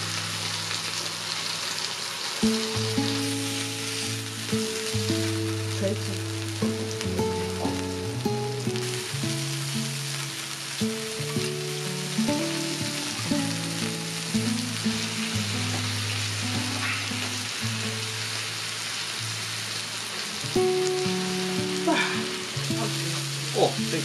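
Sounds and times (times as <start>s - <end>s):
food sizzling on grill pan: 0.0s - 24.0s
background music: 2.5s - 17.2s.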